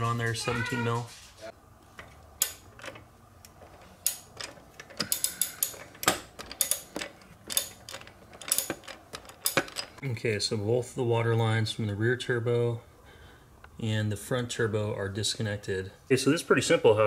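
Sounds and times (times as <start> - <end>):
ratchet wrench clicking: 4.9 - 9.9.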